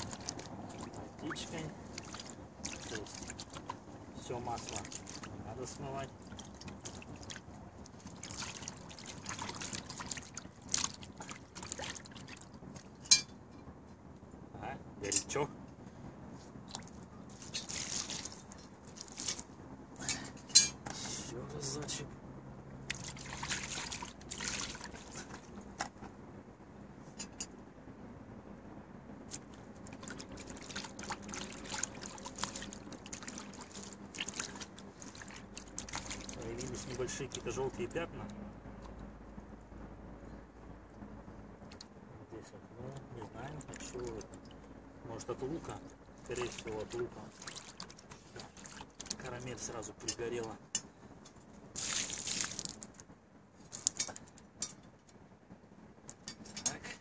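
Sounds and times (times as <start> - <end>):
water trickling and sloshing in pot: 0.0 - 13.8, 16.3 - 22.0, 22.7 - 26.1, 29.4 - 39.0, 41.6 - 53.0, 53.6 - 54.8.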